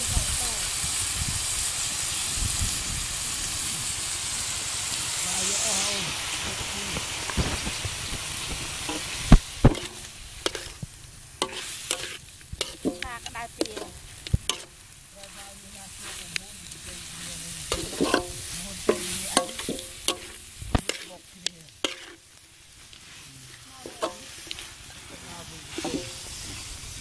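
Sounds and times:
frying sizzle: 0.0 - 27.0
metal spoon scraping a wok: 6.2 - 26.7.

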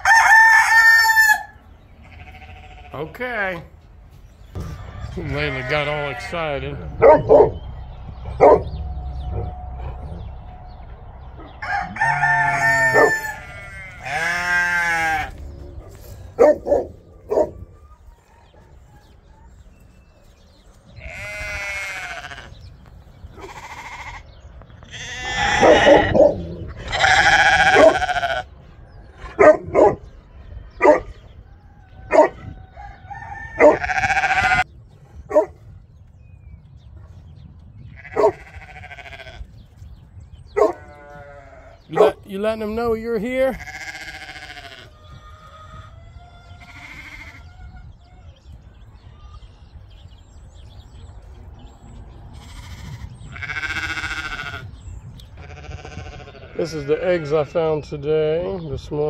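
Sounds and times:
roosters crowing: 0.0 - 3.0, 4.4 - 34.7, 37.9 - 39.6, 40.6 - 57.9
sheep bleating: 2.0 - 3.1, 4.6 - 6.9, 11.9 - 15.6, 21.0 - 22.6, 23.4 - 28.5, 33.7 - 34.7, 37.8 - 39.5, 40.7 - 41.9, 43.5 - 45.0, 46.5 - 47.5, 52.4 - 54.8, 55.4 - 57.8
dog barking: 7.0 - 7.6, 8.4 - 8.8, 15.8 - 17.6, 25.6 - 26.4, 27.8 - 28.0, 29.3 - 30.0, 30.8 - 31.2, 32.1 - 32.5, 33.6 - 33.9, 35.3 - 35.6, 38.1 - 38.4, 40.6 - 40.9, 41.9 - 42.2.

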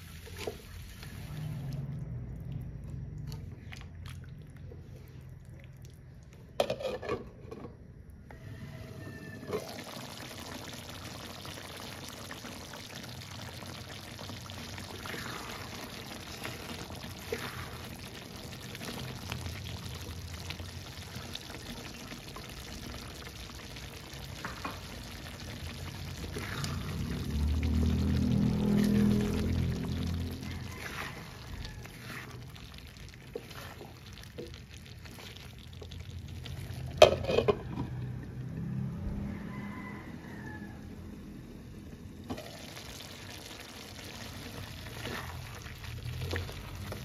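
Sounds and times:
sauce simmering in a pan: 0.0 - 6.6, 8.1 - 47.0
spatula stirring sauce: 14.5 - 21.8, 24.4 - 37.5, 44.1 - 47.0.

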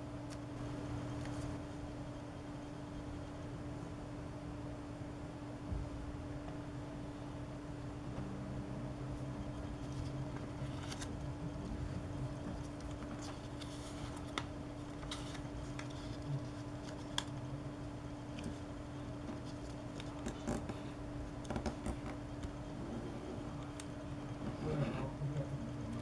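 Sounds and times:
low steady hum: 0.0 - 26.0
paper rustling and creasing: 9.8 - 11.2, 12.5 - 17.4.

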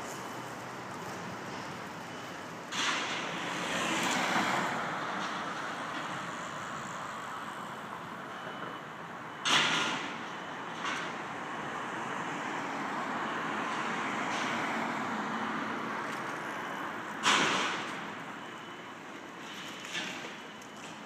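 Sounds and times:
car passing: 3.4 - 5.1.

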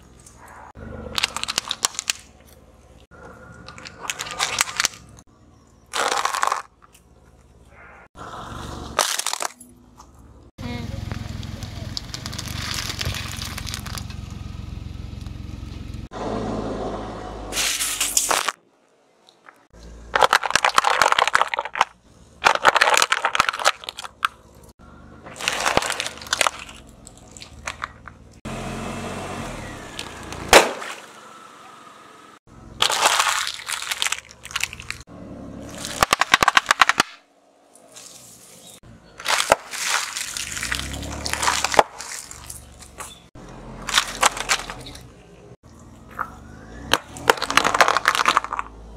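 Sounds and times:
tyre crushing plastic objects: 1.1 - 2.4, 3.6 - 5.2, 5.9 - 6.9, 9.0 - 9.6, 12.0 - 14.2, 19.4 - 24.4, 25.3 - 28.2, 32.8 - 35.0, 35.6 - 37.2, 39.2 - 43.2, 43.8 - 45.0, 46.9 - 48.8
plastic bottle bursting bang: 30.5 - 31.0.

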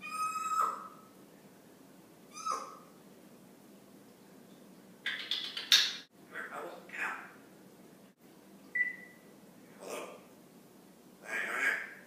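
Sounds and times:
parrot whistling call: 0.0 - 1.0
parrot harsh rasping call: 0.0 - 1.1, 2.3 - 2.9, 11.2 - 12.0.

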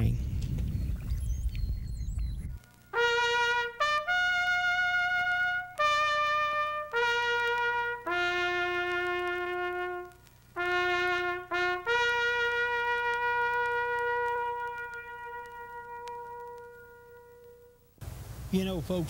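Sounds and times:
brass instrument playing slow tune: 2.9 - 17.8.

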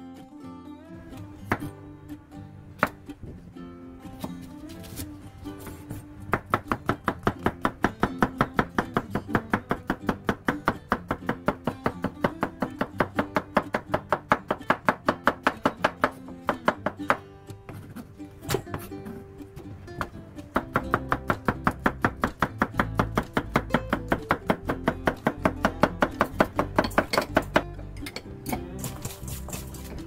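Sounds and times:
plucked guitar background music: 0.0 - 30.0
knife chopping on wooden board: 6.4 - 19.2, 20.6 - 27.7.

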